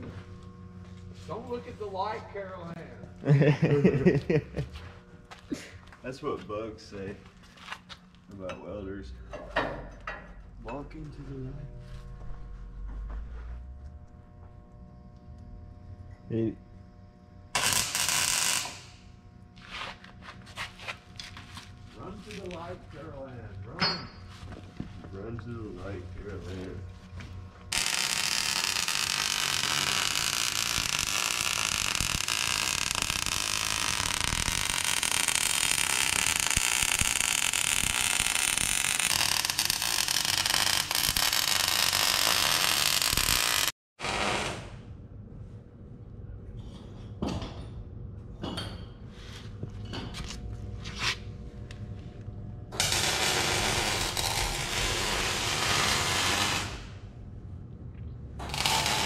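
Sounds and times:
welder arc crackling: 0:17.5 - 0:19.6, 0:25.8 - 0:43.8, 0:52.7 - 0:57.0, 0:58.4 - 0:59.0.

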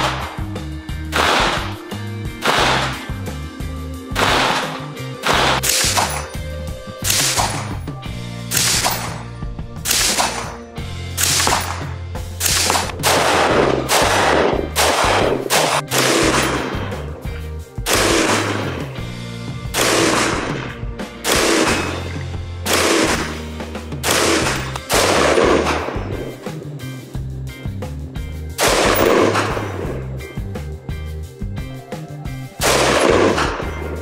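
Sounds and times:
background music with bass line: 0:00.0 - 0:34.0
rifle shots: 0:01.1 - 0:01.8, 0:02.4 - 0:03.1, 0:04.1 - 0:06.4, 0:07.0 - 0:10.6, 0:11.2 - 0:17.0, 0:17.9 - 0:19.1, 0:19.7 - 0:26.4, 0:28.6 - 0:30.0, 0:32.6 - 0:33.8.

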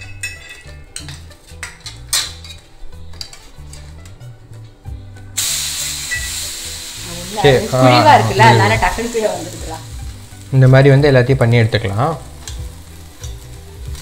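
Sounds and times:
spatula clinking on steel plates: 0:00.0 - 0:04.1
batter sizzling on a griddle: 0:05.3 - 0:14.0.

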